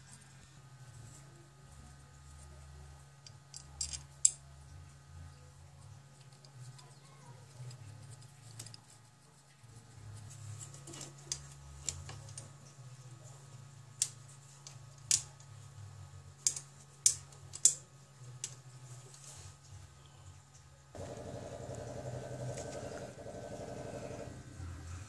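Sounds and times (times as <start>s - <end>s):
steady low hum: 19.8s - 25.0s.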